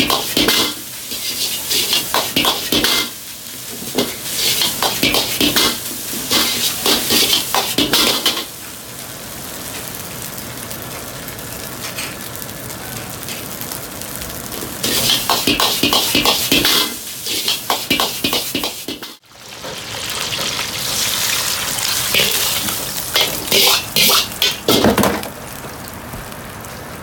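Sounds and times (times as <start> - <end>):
metal ladle scraping a wok: 0.0 - 3.2, 3.9 - 8.5, 14.8 - 19.2, 22.1 - 24.8
gas burner: 0.0 - 19.2, 21.7 - 27.0
rice sizzling in a wok: 0.0 - 27.0.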